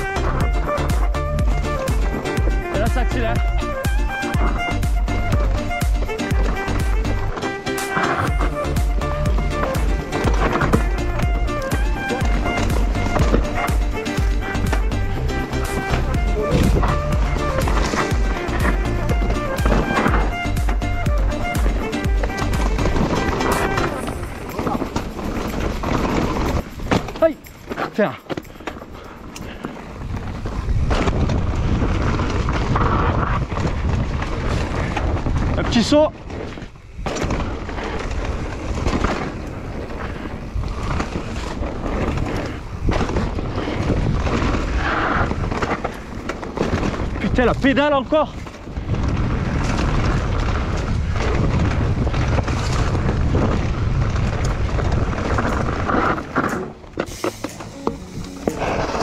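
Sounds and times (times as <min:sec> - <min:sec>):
bike knocking and rattling on rocks: 0:00.0 - 0:59.0
bike tyres rumbling on rocky trail: 0:00.0 - 0:59.0
wind rushing over microphone: 0:28.8 - 0:57.0.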